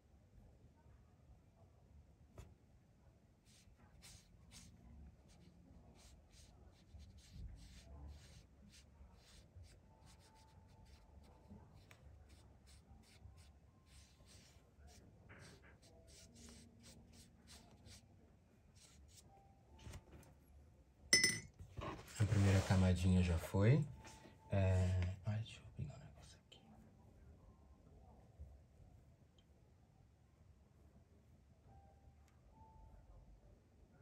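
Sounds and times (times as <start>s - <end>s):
brush strokes on paper: 3.4s - 18.1s, 18.7s - 20.0s, 21.8s - 23.1s.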